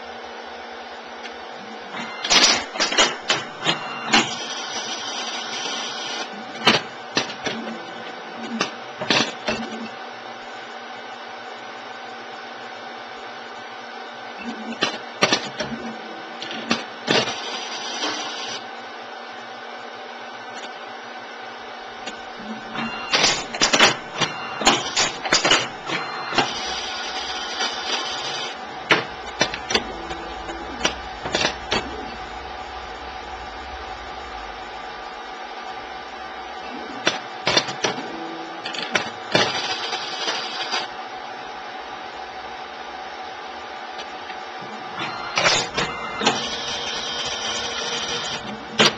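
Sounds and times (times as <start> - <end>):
steady machine hum: 0.0 - 48.9
mechanical clicks and clunks: 22.1 - 26.8, 28.6 - 34.8.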